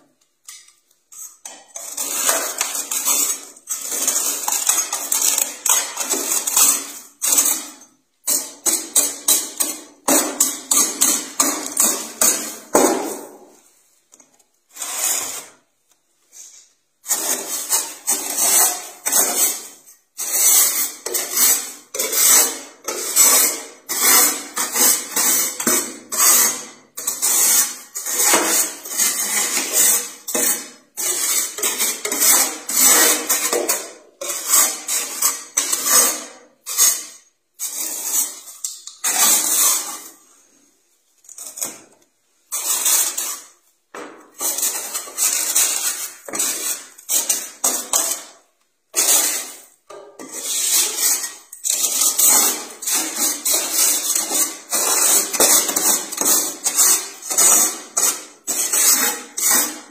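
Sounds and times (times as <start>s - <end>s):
metal tool scraping frost: 14.7s - 15.6s, 16.3s - 40.3s, 44.4s - 59.9s.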